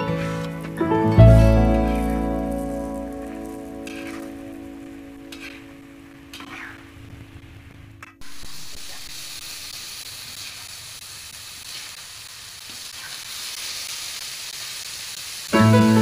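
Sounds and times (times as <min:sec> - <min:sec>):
food sizzling in a wok: 0:00.0 - 0:16.0
metal spatula stirring: 0:03.8 - 0:04.3, 0:05.3 - 0:05.6.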